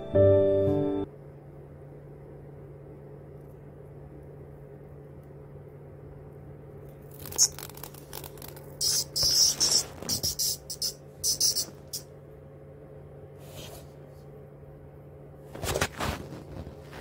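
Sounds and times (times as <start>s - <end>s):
faint steady hum: 0.0s - 17.0s
cicada buzzing: 8.8s - 12.0s.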